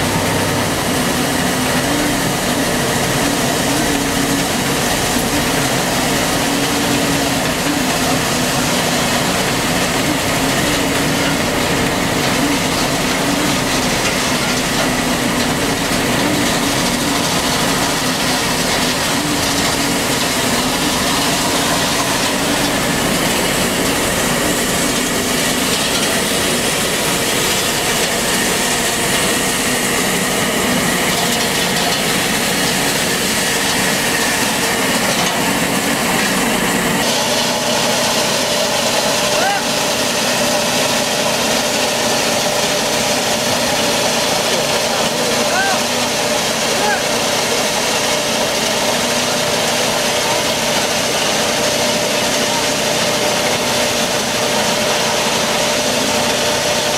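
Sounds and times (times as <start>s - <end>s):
wavering hum: 0.0s - 39.6s
concrete finisher machine running: 0.0s - 56.9s.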